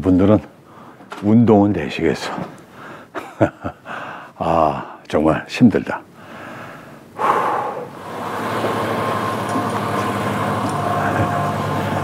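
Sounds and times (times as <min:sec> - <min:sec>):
vehicle engine humming: 0:08.0 - 0:12.0.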